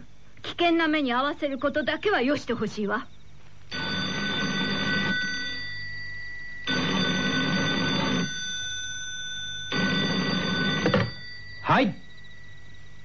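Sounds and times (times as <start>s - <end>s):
telephone bell ringing: 3.7s - 13.0s.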